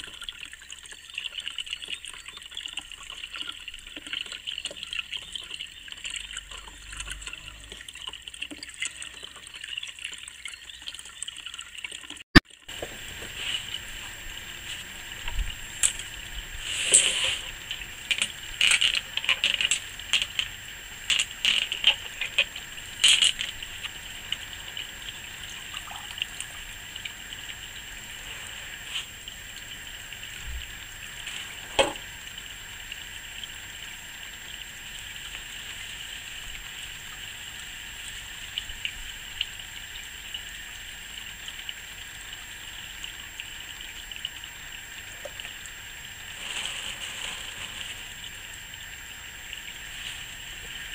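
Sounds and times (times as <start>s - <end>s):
fountain water splashing: 12.6s - 39.6s, 41.0s - 50.9s
pebbles clicking and knocking: 16.9s - 23.9s.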